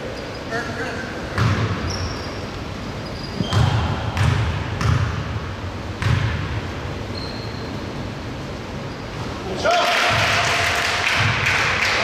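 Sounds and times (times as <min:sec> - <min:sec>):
basketball bouncing on gym floor: 0:01.3 - 0:02.2, 0:03.3 - 0:06.8, 0:10.0 - 0:11.8
high squeak: 0:07.1 - 0:07.8.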